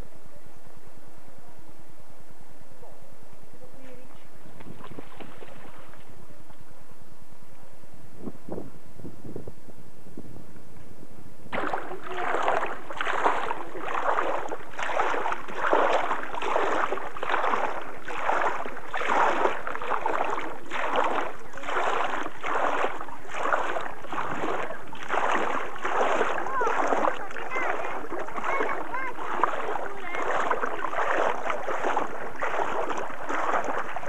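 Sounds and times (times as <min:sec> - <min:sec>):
shallow sea water splashing: 0:04.6 - 0:06.3, 0:11.5 - 0:34.0.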